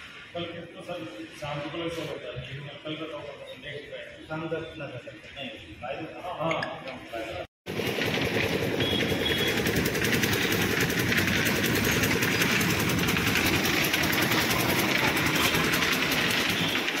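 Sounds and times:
motor running with fast rattle: 7.7s - 17.0s.

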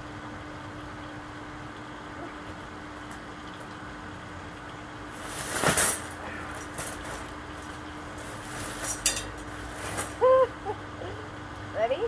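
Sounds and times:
wire cage trap rattling: 8.6s - 10.2s.

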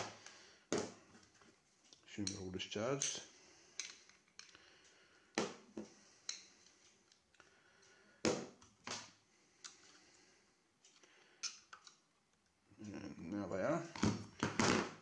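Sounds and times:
clicks and knocks of metal parts: 1.9s - 3.2s, 3.8s - 4.6s.

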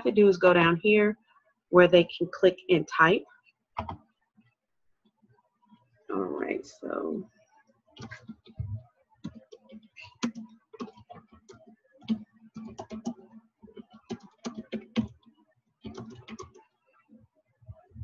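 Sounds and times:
typing on computer keyboard: 3.8s - 4.0s, 9.2s - 15.3s, 15.9s - 16.6s.

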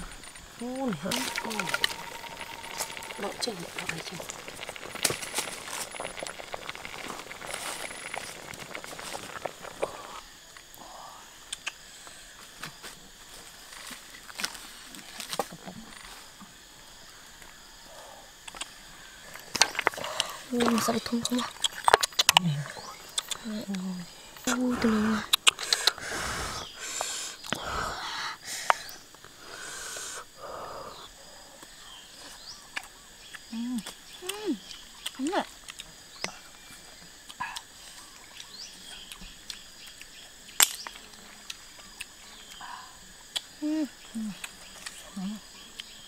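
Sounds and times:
wood fire crackling: 0.0s - 10.7s, 18.4s - 27.1s
mussel shells clinking in wok: 1.1s - 9.9s.

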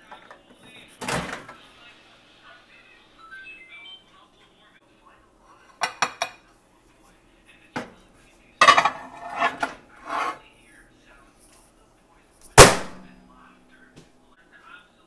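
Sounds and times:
plate clattering on glass: 8.6s - 10.4s.

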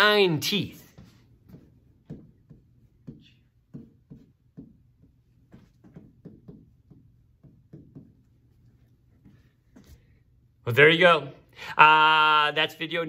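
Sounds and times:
pen tapping on whiteboard screen: 0.9s - 9.9s.

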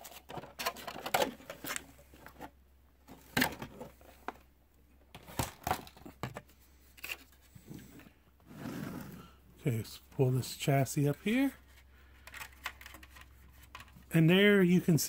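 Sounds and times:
plastic parts handled: 0.0s - 8.1s, 11.2s - 14.1s.

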